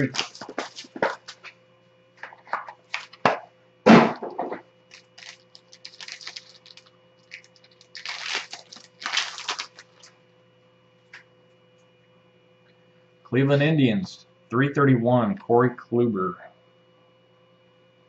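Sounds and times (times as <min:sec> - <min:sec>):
plastic wrapper crinkling: 0:00.0 - 0:01.4, 0:04.9 - 0:10.1
sharp knock: 0:03.9 - 0:04.6
cardboard box clicks and crackles: 0:04.9 - 0:10.0.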